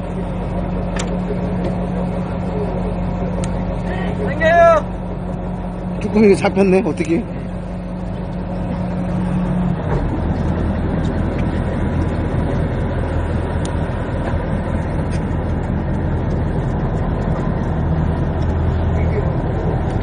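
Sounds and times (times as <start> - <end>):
boat engine humming: 0.0 - 20.0
wind and water noise: 0.0 - 20.0.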